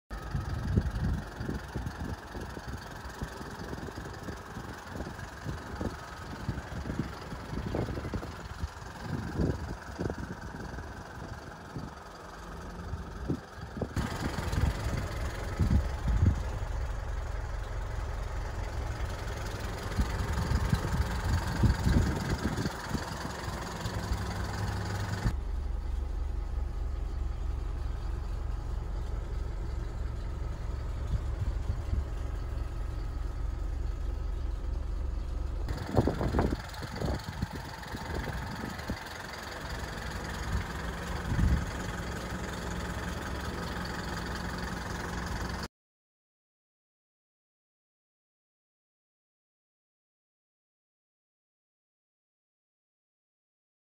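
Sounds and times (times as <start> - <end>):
diesel truck engine idling: 0.1 - 45.7
wind buffeting microphone: 0.2 - 12.1, 12.9 - 17.1, 18.8 - 25.3, 29.1 - 34.2, 35.7 - 42.0.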